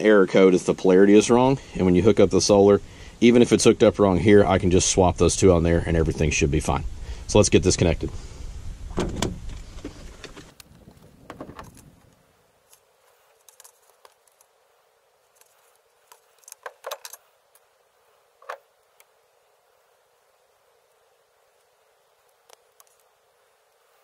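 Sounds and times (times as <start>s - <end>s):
wire rustling: 9.4s - 24.0s.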